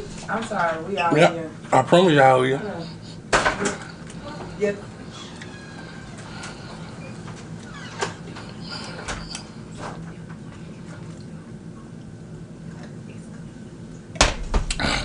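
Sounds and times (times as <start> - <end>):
faint low hum: 0.0 - 15.0
man chewing food: 2.8 - 13.0.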